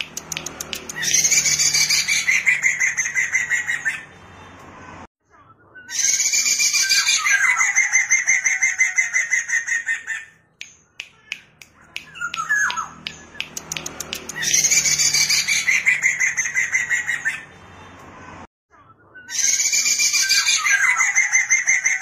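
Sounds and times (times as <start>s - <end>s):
bird singing rapid high notes: 0.0s - 4.4s, 10.5s - 17.7s.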